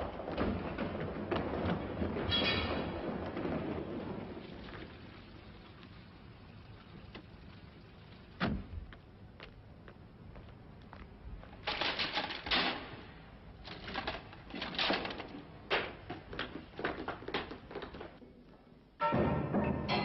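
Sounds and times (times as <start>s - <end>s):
rattling metal gate clatter: 2.2s - 3.3s, 11.6s - 13.1s
footsteps on stone stairs: 8.8s - 11.6s, 15.7s - 18.2s.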